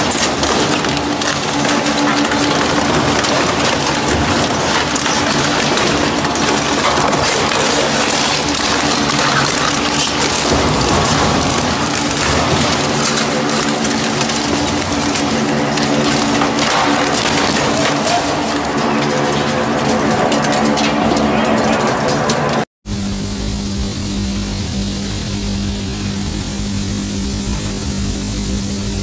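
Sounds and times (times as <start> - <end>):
metal crunching and scraping: 0.0 - 22.7
shredder drive humming: 0.0 - 29.0.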